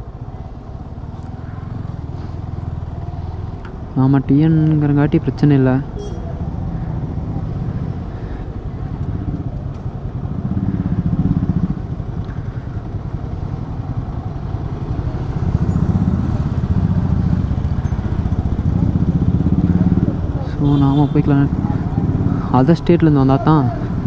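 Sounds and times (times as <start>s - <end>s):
motorcycle engine running: 5.9s - 24.0s.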